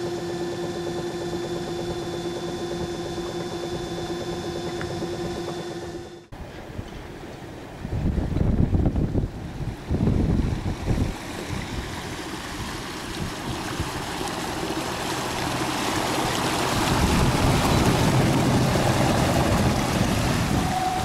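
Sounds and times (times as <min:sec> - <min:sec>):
boat wake rushing water: 0:00.0 - 0:21.0
wind buffeting microphone: 0:06.4 - 0:14.6, 0:16.5 - 0:21.0.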